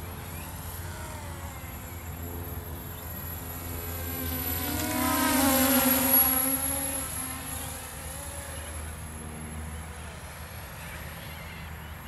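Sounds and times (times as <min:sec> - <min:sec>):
model aircraft motor whine: 0:00.0 - 0:12.0.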